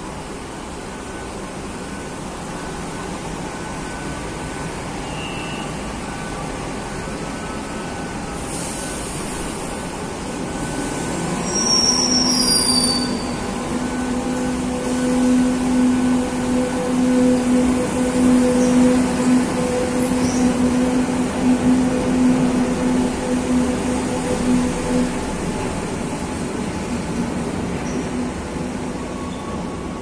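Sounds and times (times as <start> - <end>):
train rumble: 5.6 - 30.0
high wheel squeals: 10.6 - 17.7.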